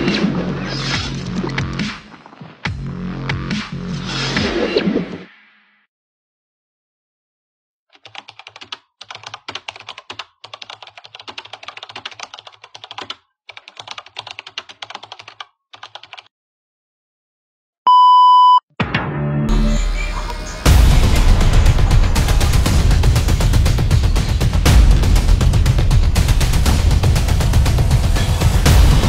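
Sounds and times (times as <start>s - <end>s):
music: 0.0s - 5.9s, 18.8s - 29.0s
electronic beep: 17.9s - 18.6s.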